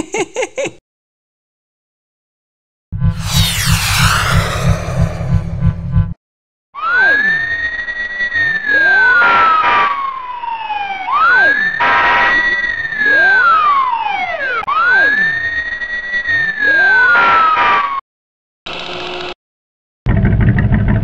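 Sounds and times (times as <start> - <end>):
short siren blasts: 3.1 - 6.1
fire engine siren wailing: 7.0 - 11.8, 13.0 - 17.0.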